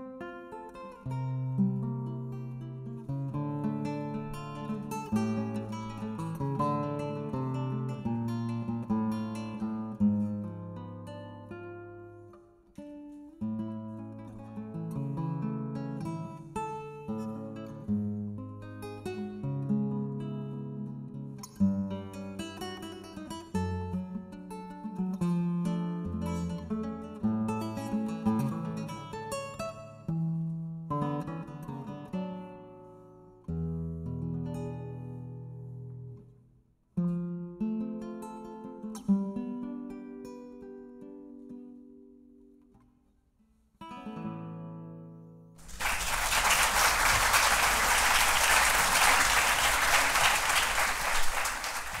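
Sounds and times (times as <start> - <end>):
classical guitar playing: 0.0 - 45.6
audience applauding: 45.6 - 52.0.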